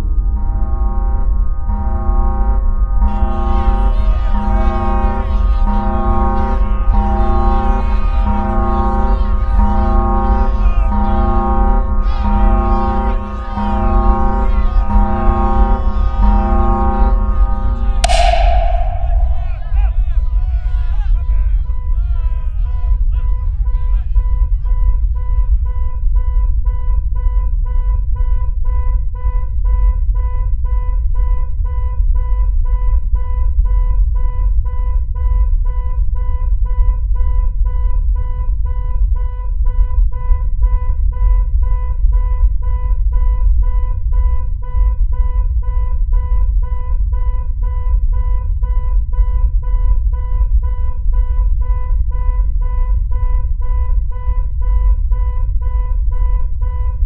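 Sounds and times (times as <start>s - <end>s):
pulsing synthesized drone: 0.0s - 25.4s
deep continuous rumble: 0.0s - 35.2s.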